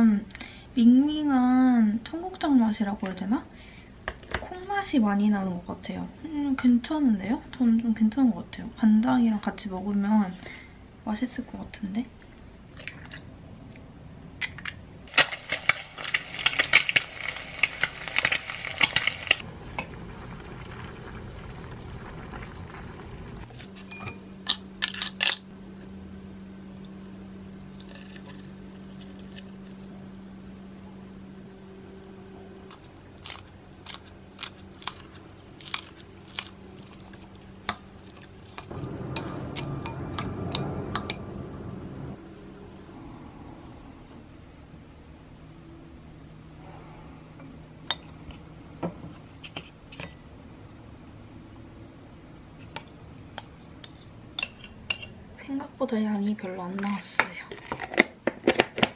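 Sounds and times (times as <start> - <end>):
utensils clinking on glass bowl: 54.4 - 55.1.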